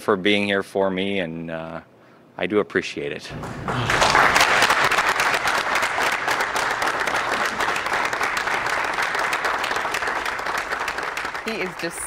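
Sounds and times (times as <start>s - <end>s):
group clapping: 3.3s - 12.0s.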